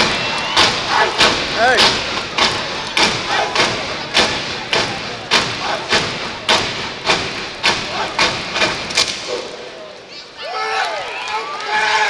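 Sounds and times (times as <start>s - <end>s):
stomping and clapping in unison: 0.0s - 9.3s
crowd noise: 0.0s - 12.0s.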